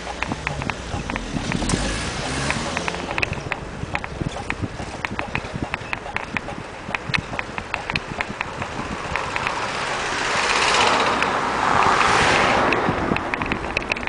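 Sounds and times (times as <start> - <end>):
bicycle rattling ticks: 0.0 - 12.1, 12.7 - 14.0
car passing by: 0.7 - 3.2, 9.7 - 13.2.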